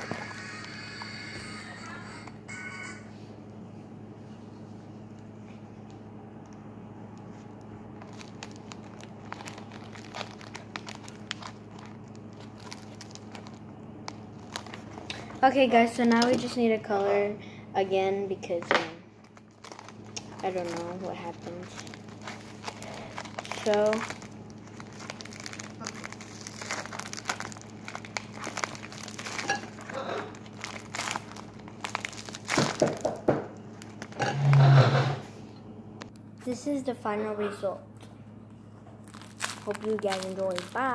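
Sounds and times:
steady low hum: 0:00.0 - 0:40.9
packing tape crinkling and crackling: 0:06.4 - 0:16.4, 0:19.2 - 0:34.2, 0:38.9 - 0:40.9.

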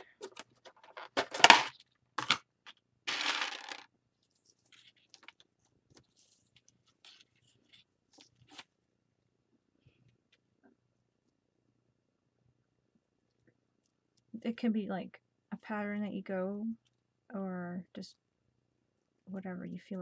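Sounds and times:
beads rattling: 0:03.1 - 0:05.4.

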